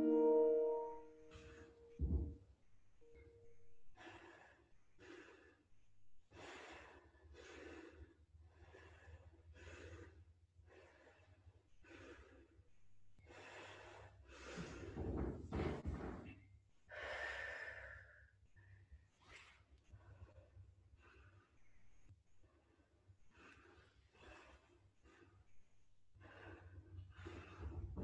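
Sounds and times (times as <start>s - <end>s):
person breathing: 6.3s - 12.5s, 16.9s - 18.9s.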